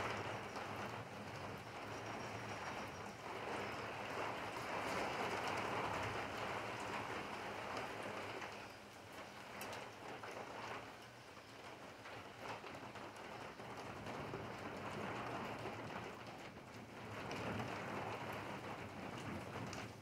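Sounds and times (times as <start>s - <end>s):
rain on pavement and rooftops: 0.0s - 20.0s.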